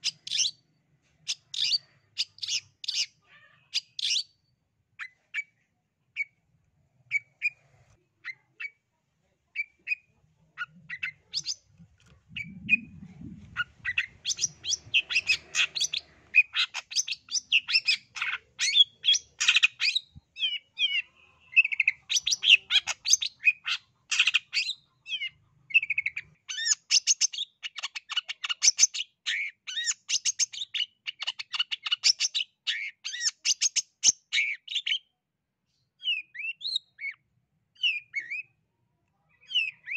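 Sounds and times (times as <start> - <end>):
bird chirping and chattering: 0.0 - 0.6, 1.2 - 4.4, 9.5 - 35.1, 39.3 - 39.9.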